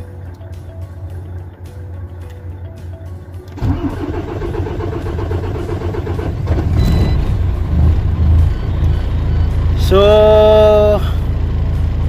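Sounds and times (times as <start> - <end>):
diesel engine cranking and running: 3.5 - 12.0
dashboard warning chime beeping: 6.1 - 10.9.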